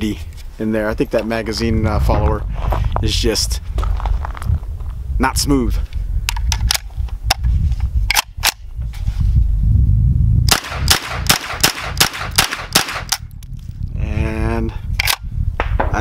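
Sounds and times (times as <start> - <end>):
pistol gunshots: 10.5 - 13.2.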